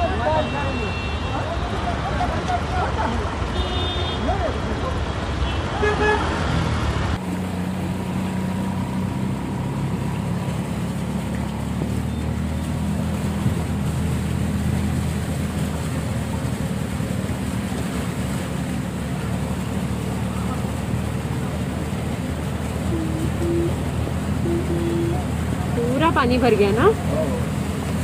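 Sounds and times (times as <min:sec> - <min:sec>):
water and rain wash: 0:00.0 - 0:28.0
vehicle engine droning: 0:06.0 - 0:28.0.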